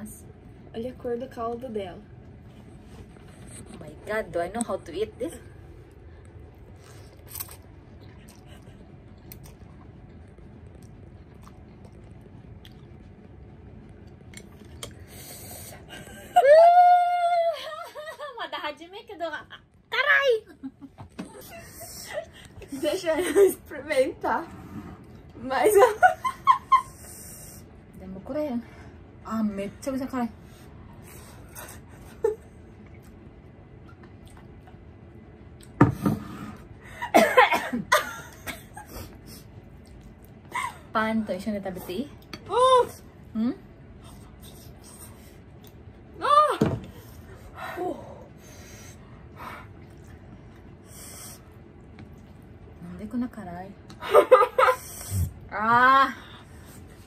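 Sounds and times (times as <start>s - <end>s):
person chewing noodles: 6.5s - 15.6s
women laughing: 15.9s - 18.5s, 25.6s - 27.1s, 54.0s - 55.0s.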